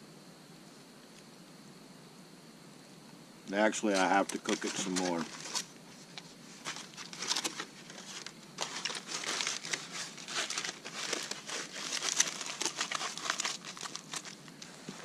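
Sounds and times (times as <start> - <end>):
aluminium foil crinkling: 3.8 - 15.0.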